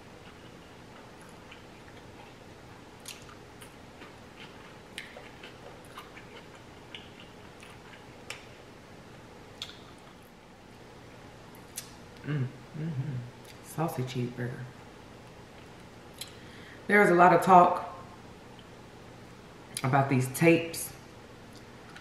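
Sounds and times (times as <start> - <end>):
person chewing: 0.1 - 8.6, 9.6 - 10.3
wet mouth clicks and smacks: 3.0 - 3.4, 9.6 - 10.2.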